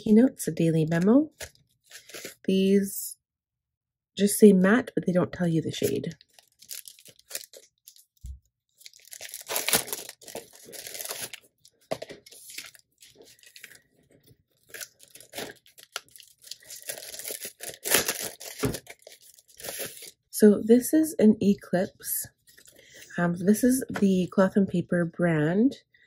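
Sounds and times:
plastic packaging crinkling and tearing: 1.3s - 2.5s, 5.8s - 20.2s.

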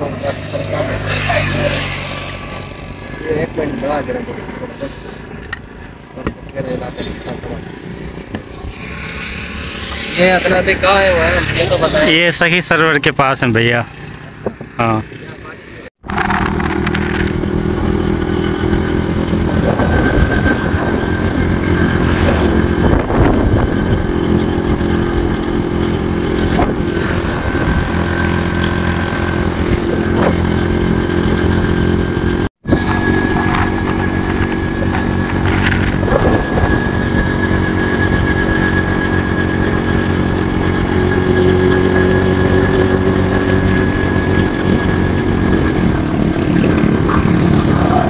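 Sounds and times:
motorcycle engine cruising: 0.0s - 48.0s.

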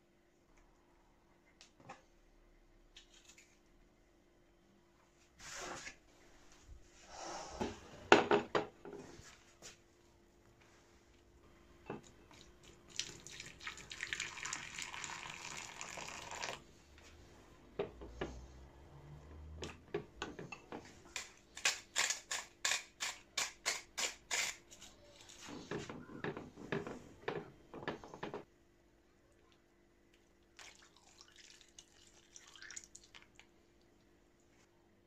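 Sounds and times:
water pouring into bowl: 12.9s - 16.6s, 30.6s - 33.4s.

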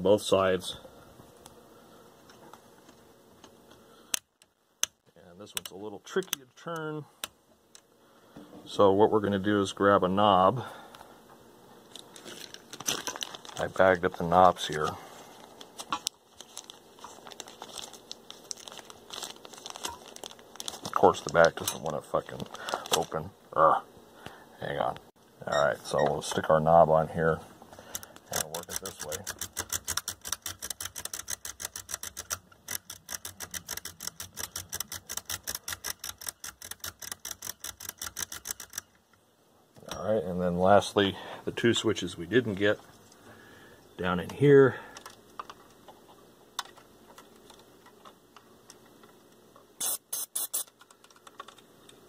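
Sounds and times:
plastic bag crinkling: 11.9s - 23.2s
rotary switch clicking: 27.9s - 38.9s.

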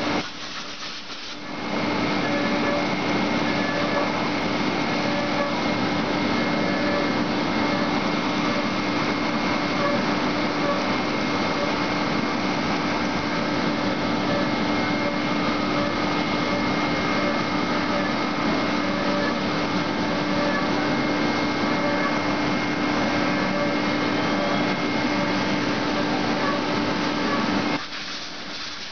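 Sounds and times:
coolant spray hissing: 0.0s - 1.5s, 27.8s - 28.9s
spindle whine: 1.4s - 28.6s.

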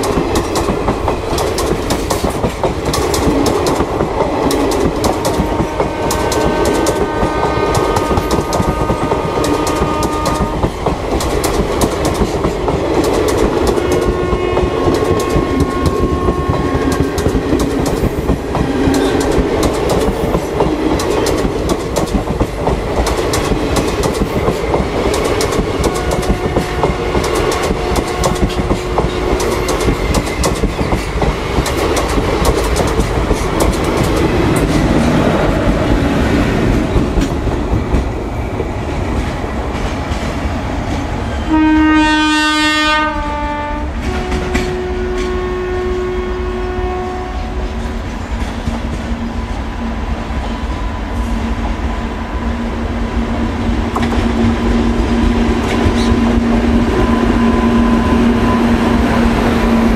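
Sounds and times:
wheels clicking over rail joints: 0.0s - 7.1s, 7.7s - 16.2s, 16.8s - 35.8s
train coaches rumbling: 0.0s - 59.9s
locomotive horn: 5.0s - 10.7s, 13.7s - 17.5s, 25.8s - 29.7s, 41.4s - 48.0s.

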